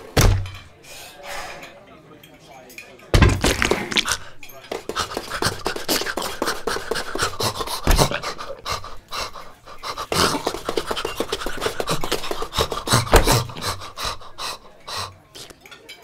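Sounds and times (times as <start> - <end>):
cartoon dog panting: 4.9 - 15.5.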